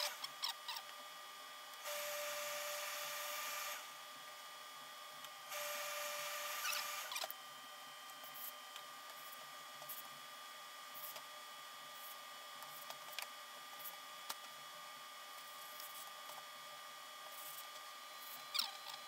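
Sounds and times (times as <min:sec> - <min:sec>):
steam iron hissing: 0:01.9 - 0:03.8, 0:05.5 - 0:07.1.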